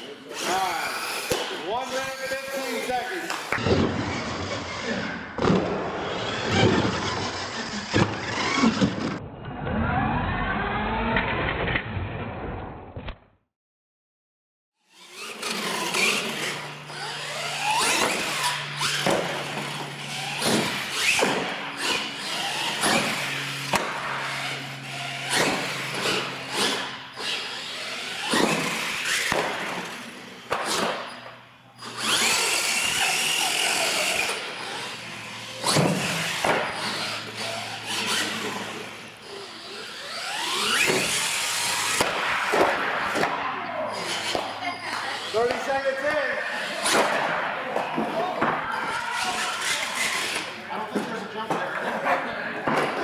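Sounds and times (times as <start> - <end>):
electric motors whining: 0.0 - 11.2, 14.9 - 51.7
toy trucks thudding and clattering: 14.9 - 31.1, 31.8 - 43.2.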